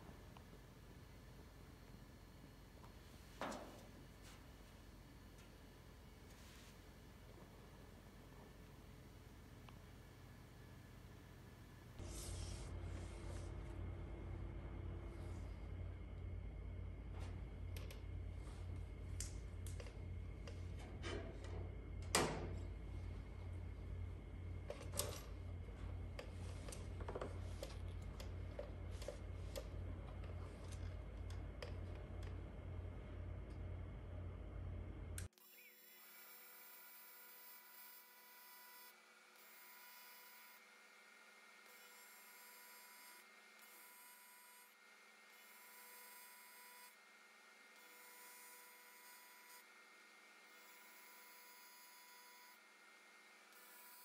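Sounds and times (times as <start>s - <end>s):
low steady hum: 0.0s - 36.0s.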